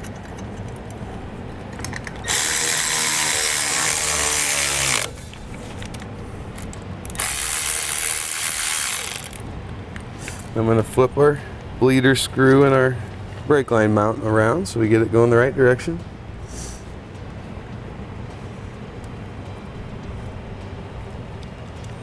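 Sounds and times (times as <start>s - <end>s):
cordless power ratchet running: 1.8s - 5.2s, 6.6s - 9.4s.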